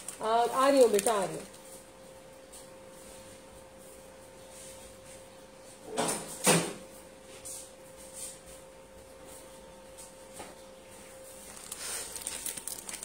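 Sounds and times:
plastic bag rustling and crinkling: 0.0 - 1.8, 11.1 - 13.0.

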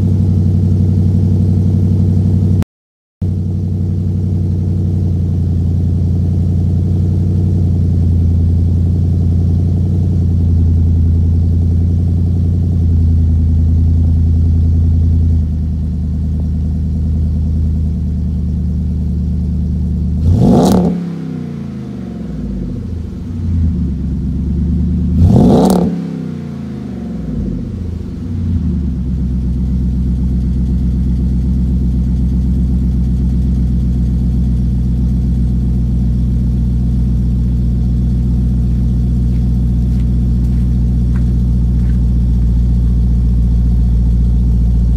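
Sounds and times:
car engine idling: 0.0 - 2.6, 3.2 - 44.9
car engine throttle blips: 19.4 - 44.9.

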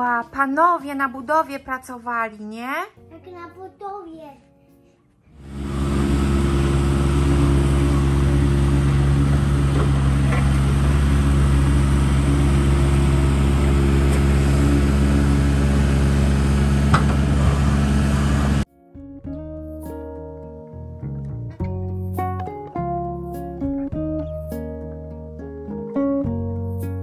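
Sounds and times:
diesel machinery engines droning: 5.4 - 18.7.

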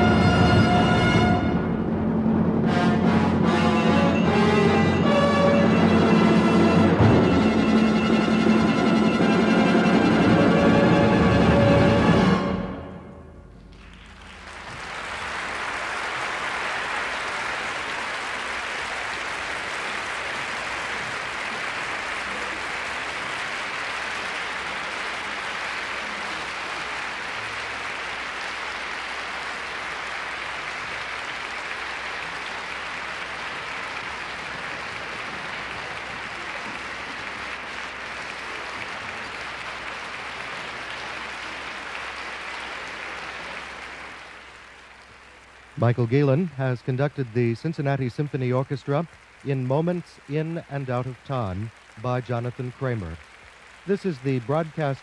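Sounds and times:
audience applause: 0.0 - 1.7, 2.7 - 12.8, 13.6 - 55.0
orchestra final chord: 0.0 - 13.7
tape hiss: 0.0 - 55.0.

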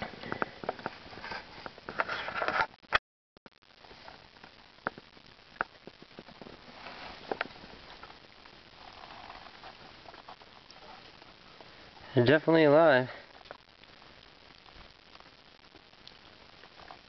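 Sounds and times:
faint rustling: 3.7 - 12.2.

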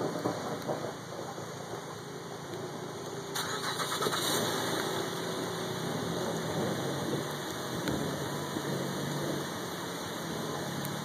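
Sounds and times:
car engine starting and idling: 0.0 - 11.0.

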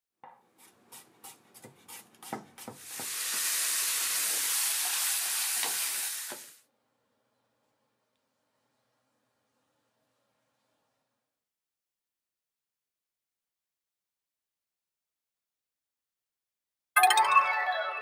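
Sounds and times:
knife chopping on wooden board: 0.2 - 3.2
beans sizzling in frying pan: 2.8 - 6.6.

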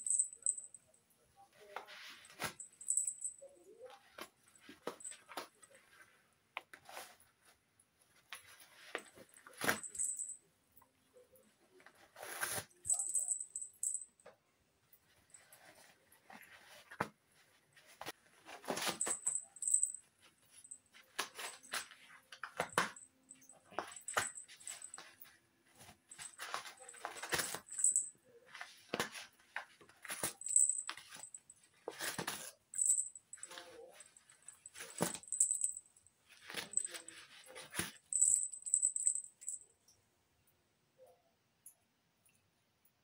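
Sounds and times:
collar tag jingling: 0.0 - 1.0, 1.9 - 5.7, 9.0 - 10.4, 12.8 - 14.3, 18.6 - 25.4, 26.1 - 28.2, 30.0 - 39.7.

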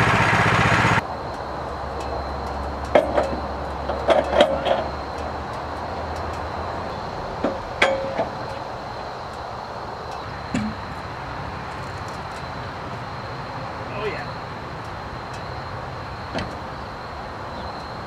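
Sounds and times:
metal clanks and knocks: 2.0 - 9.0, 10.1 - 11.0.

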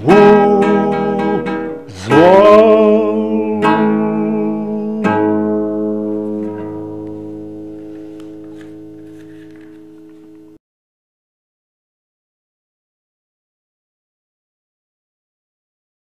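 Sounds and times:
elderly man singing: 0.0 - 6.1
classical guitar chords: 0.0 - 10.6.

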